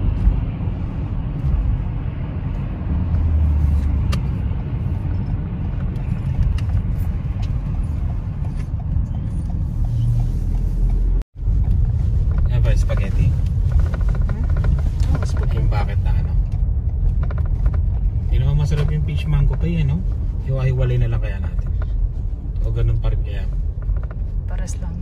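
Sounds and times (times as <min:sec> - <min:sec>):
car engine inside cabin: 0:00.0 - 0:25.0.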